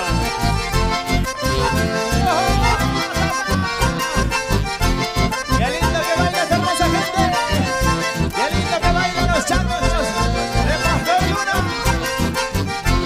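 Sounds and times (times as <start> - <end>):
accordion melody: 0.0 - 13.0
strummed guitars: 0.0 - 13.0
steady bass beat: 0.1 - 13.0.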